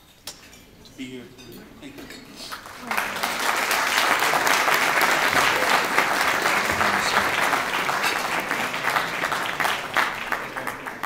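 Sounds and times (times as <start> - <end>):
people clapping: 2.4 - 11.0.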